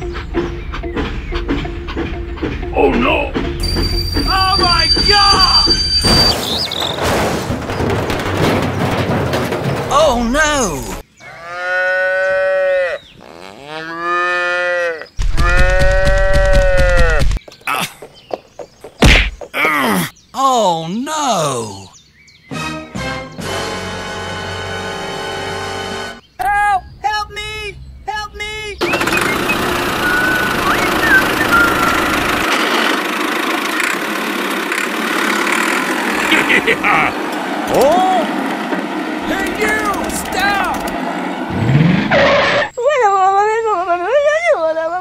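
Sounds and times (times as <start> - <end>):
low rapid rattling rumble: 6.8 - 11.0, 28.8 - 42.1
cow mooing: 11.2 - 17.1
small motor running: 28.8 - 36.2.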